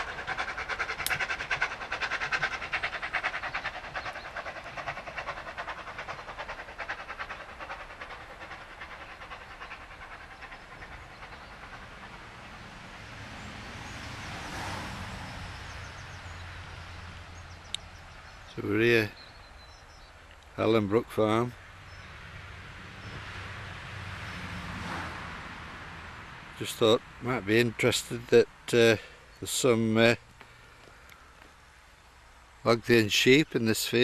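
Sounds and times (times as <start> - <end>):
steam locomotive chuffing: 0.0 - 13.0.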